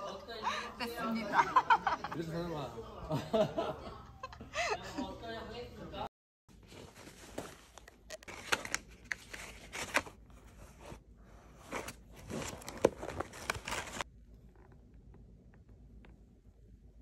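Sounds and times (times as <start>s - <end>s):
books and papers rustling in bag: 6.5s - 14.1s.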